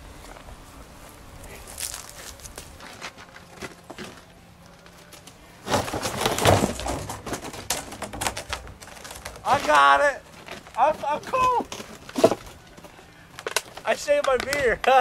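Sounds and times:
plastic trash cans clattering: 5.6 - 12.6.

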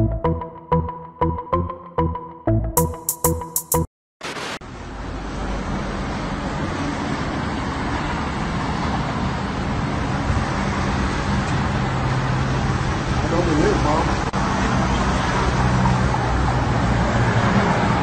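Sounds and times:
tv static hiss: 4.2 - 4.6
road traffic noise: 4.2 - 18.0.

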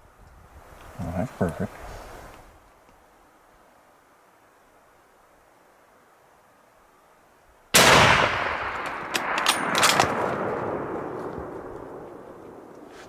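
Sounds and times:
rifle shot echoing: 7.8 - 13.0.

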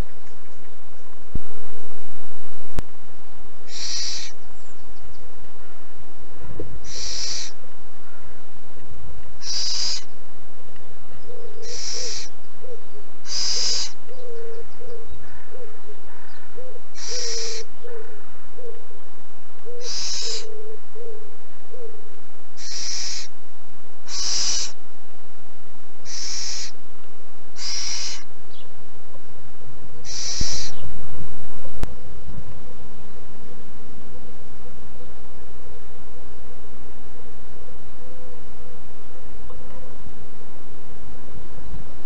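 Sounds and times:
owl chick rasping hiss: 3.6 - 4.5, 6.5 - 8.4, 9.3 - 10.2, 11.3 - 18.8, 19.6 - 21.9, 22.5 - 23.4, 24.0 - 24.8, 26.0 - 26.8, 27.5 - 28.7, 30.0 - 30.9.

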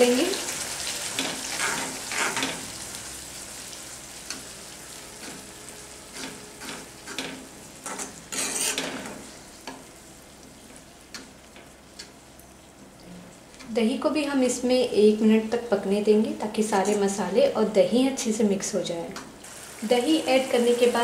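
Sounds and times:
masala sizzling: 0.0 - 21.0
metal spatula scraping pan: 1.4 - 2.5, 6.1 - 9.2.

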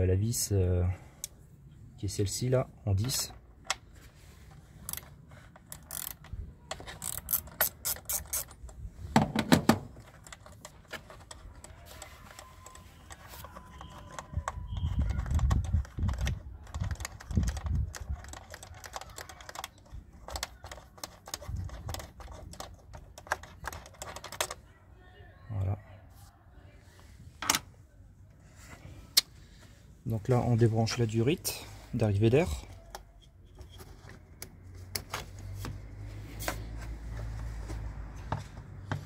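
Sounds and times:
socket ratchet clicking: 4.9 - 8.8
dull knocks and handling noises: 9.1 - 12.0.

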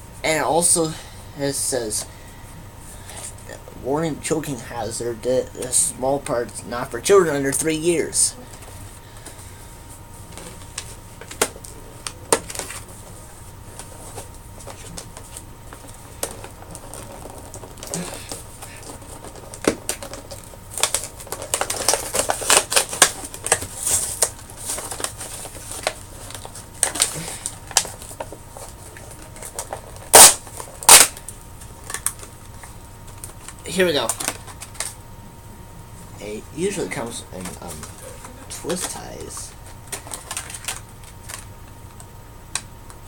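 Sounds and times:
plastic packaging crackling: 13.8 - 35.0, 36.7 - 42.6
packaging snapping: 16.2 - 35.0.

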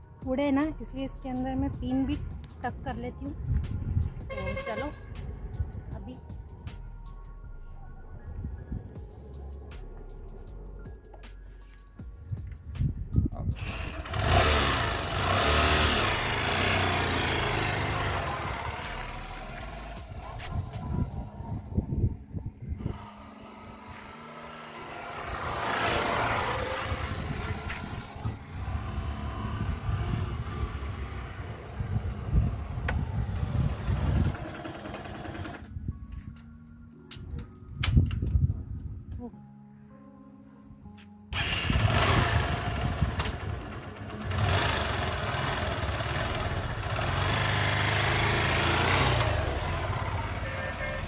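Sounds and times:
motorcycle riding past: 13.6 - 35.8, 41.3 - 51.0.

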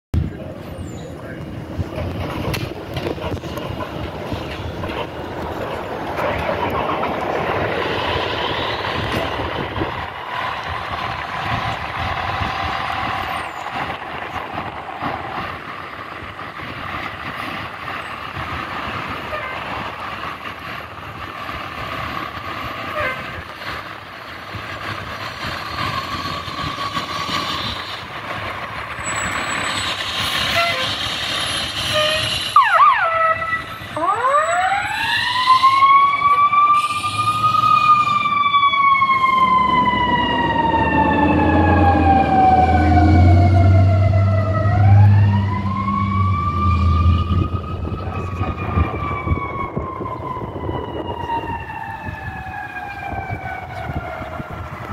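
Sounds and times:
fire engine running: 0.2 - 54.9
siren winding up and down: 29.2 - 54.9.

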